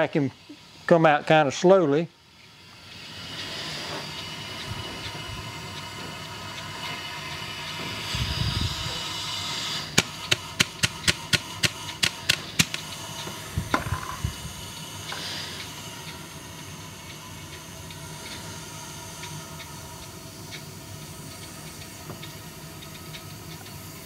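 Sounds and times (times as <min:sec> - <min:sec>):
air hissing into vacuum chamber: 0:00.0 - 0:24.0
sharp clicks: 0:10.0 - 0:13.8.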